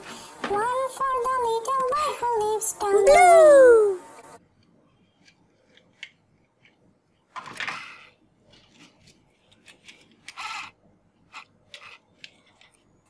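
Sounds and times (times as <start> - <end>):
toy scraping on cardboard: 10.3 - 12.1.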